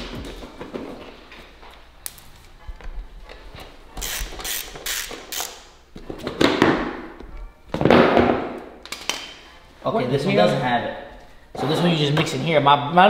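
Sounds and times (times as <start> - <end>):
socket wrench ratchet clicking: 4.0 - 5.7.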